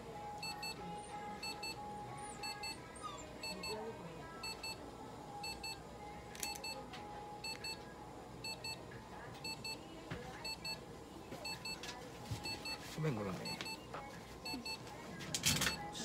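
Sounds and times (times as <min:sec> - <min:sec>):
electronic device beeping: 0:01.4 - 0:01.8.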